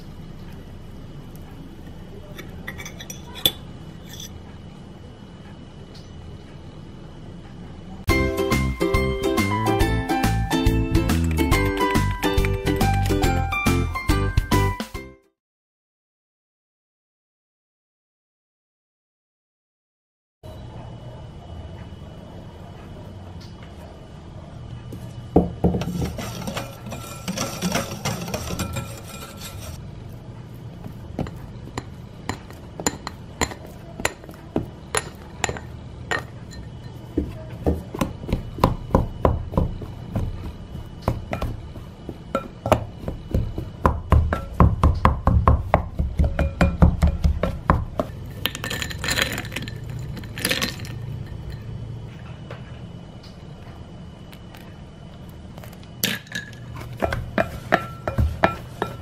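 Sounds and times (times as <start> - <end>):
background music: 8.1 - 15.3
utensil tapping glass bowl: 31.2 - 41.6, 42.3 - 51.6, 57.0 - 59.0.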